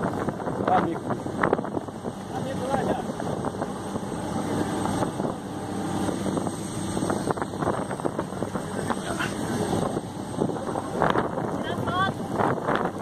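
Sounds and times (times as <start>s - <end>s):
boat engine and churning wake: 0.0s - 13.0s
wind buffeting microphone: 0.0s - 13.0s.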